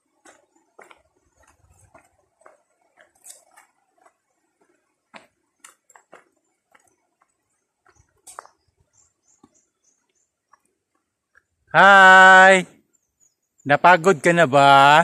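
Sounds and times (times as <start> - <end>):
footsteps crunching on stony trail: 0.0 - 11.7.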